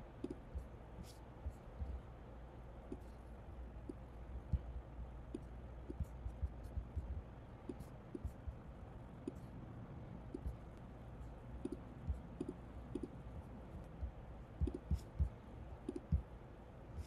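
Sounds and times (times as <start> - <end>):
faint background noise: 0.0 - 17.0
computer mouse clicks: 0.2 - 1.2, 5.3 - 8.4, 11.6 - 13.2, 14.6 - 15.2, 15.8 - 16.2.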